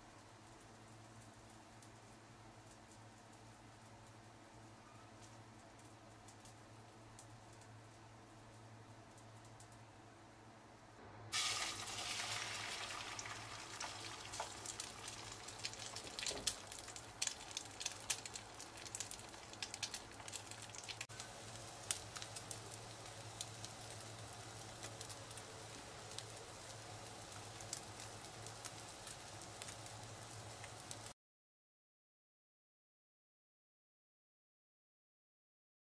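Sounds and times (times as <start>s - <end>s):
omelette sizzling in oil: 11.3s - 31.2s.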